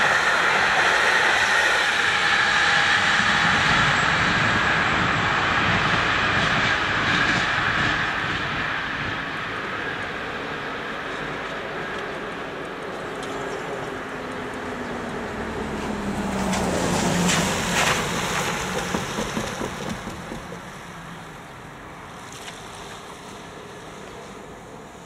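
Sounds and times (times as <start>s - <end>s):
car engine: 12.3s - 22.1s.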